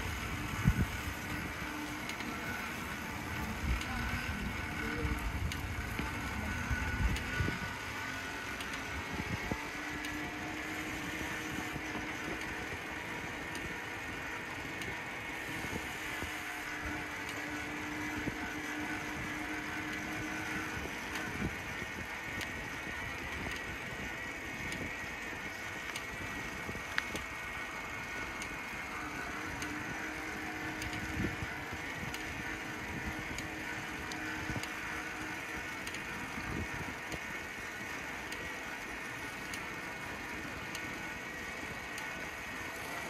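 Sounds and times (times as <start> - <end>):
bicycle tyre noise: 0.0 - 43.0
bike drivetrain rattling and clicking: 0.0 - 43.0.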